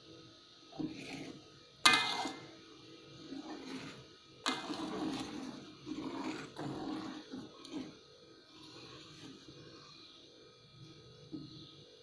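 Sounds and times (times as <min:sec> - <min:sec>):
spatula scraping wok: 0:00.8 - 0:02.5, 0:03.2 - 0:09.6.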